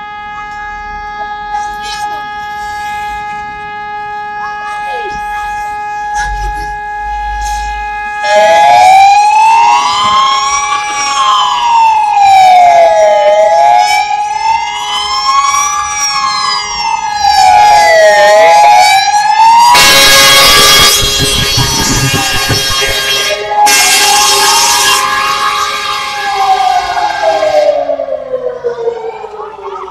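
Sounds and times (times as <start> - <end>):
fire siren wailing: 0.0 - 29.9
steady high tone: 19.7 - 25.0.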